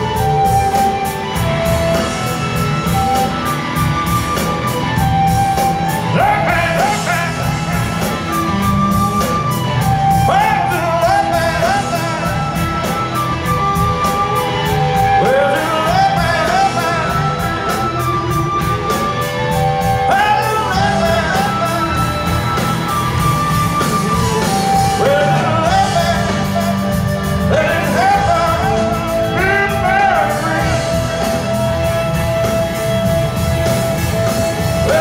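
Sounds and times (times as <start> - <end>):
live rock band playing: 0.0 - 35.0
person singing: 5.8 - 8.5, 10.0 - 18.7, 19.8 - 23.0, 23.6 - 32.0, 34.5 - 35.0.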